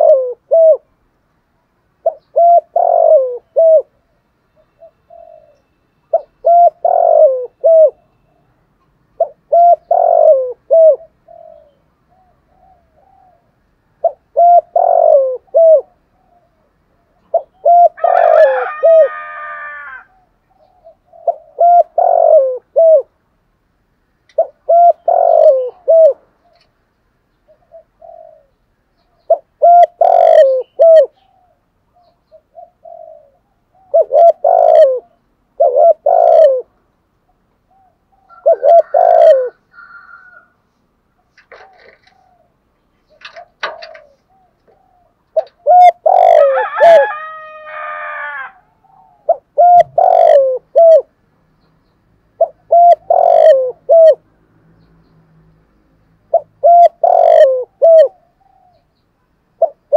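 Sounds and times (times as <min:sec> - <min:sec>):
dove cooing: 0:00.0 - 0:00.9, 0:02.0 - 0:04.0, 0:04.6 - 0:08.6, 0:09.2 - 0:23.1, 0:24.3 - 0:26.7, 0:27.5 - 0:40.5, 0:41.2 - 0:51.2, 0:52.4 - 0:54.2, 0:56.3 - 0:59.0, 0:59.6 - 0:59.9.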